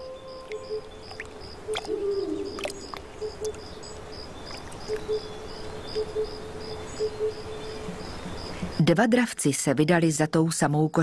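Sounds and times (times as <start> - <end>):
low steady tone: 0.0 - 8.7
insects chirping: 0.0 - 9.0.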